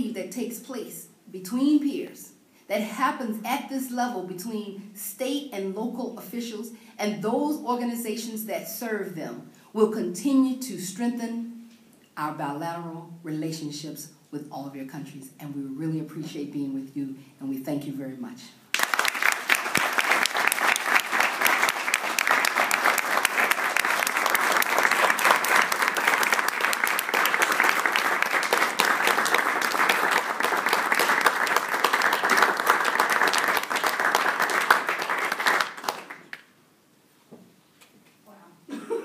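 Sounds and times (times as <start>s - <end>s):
audience applauding: 18.7s - 36.5s.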